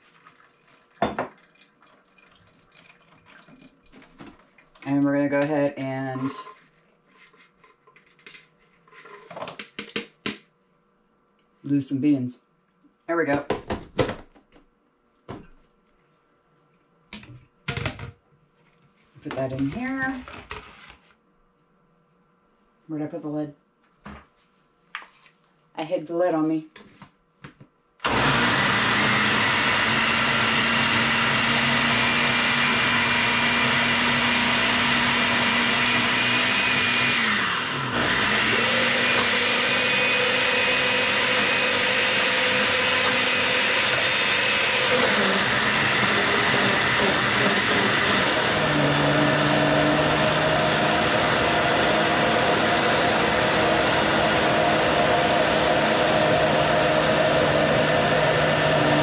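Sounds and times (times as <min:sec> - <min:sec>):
blender motor running: 0:28.0 - 0:59.0.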